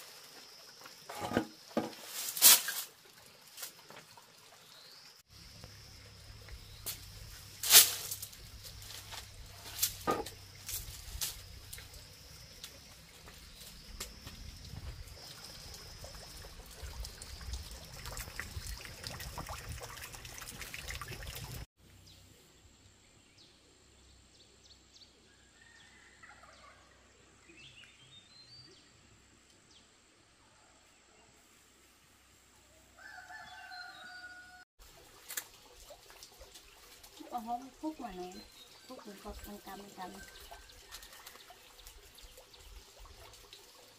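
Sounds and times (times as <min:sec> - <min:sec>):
rooster crowing: 0:33.0 - 0:34.7.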